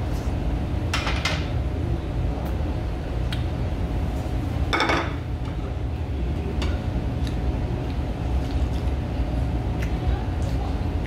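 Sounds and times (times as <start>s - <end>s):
low room rumble: 0.0s - 11.0s.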